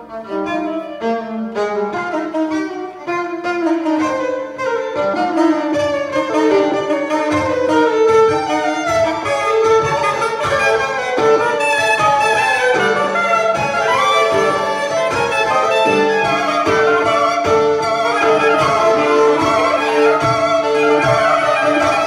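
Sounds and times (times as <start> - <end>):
bowed violin: 0.0 - 22.0
saxophone: 0.0 - 22.0.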